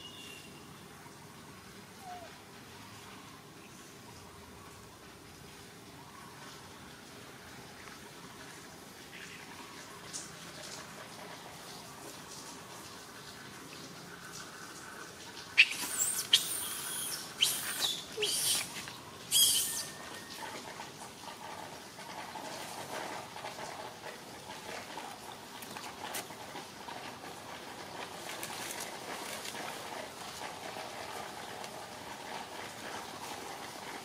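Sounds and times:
animal squeals: 0:02.0 - 0:02.3, 0:15.6 - 0:20.0.

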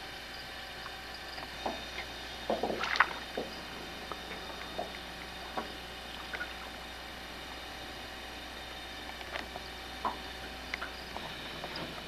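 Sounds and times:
gear knocking and clicking in boat: 0:01.4 - 0:06.6.

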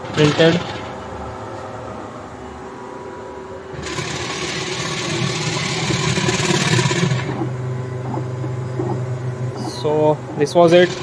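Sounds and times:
printer machine hum: 0:00.7 - 0:11.0
print-head carriage whirring: 0:03.7 - 0:11.0.

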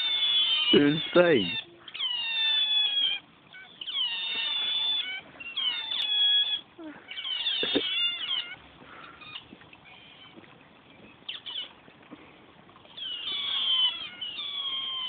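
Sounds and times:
otters squealing: 0:00.0 - 0:10.4, 0:12.9 - 0:15.0.

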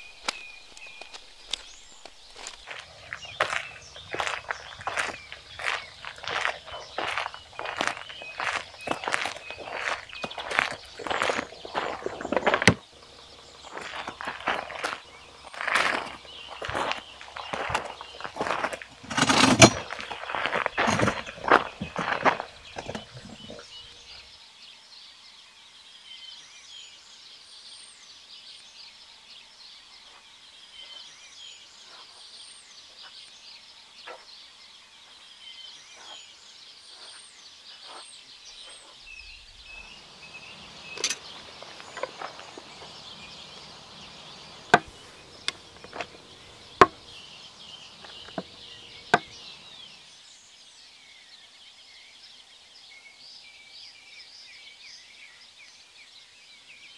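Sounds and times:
birds chirping: 0:00.0 - 0:24.3, 0:30.0 - 0:50.5
footsteps on gravel: 0:00.1 - 0:24.0, 0:39.0 - 0:50.0.

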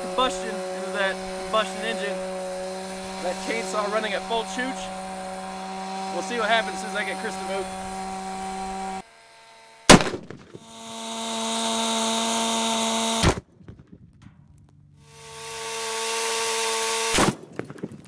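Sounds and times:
chainsaw engine at full throttle: 0:00.0 - 0:13.5, 0:15.0 - 0:17.4
rifle shot bang: 0:09.9 - 0:10.5.

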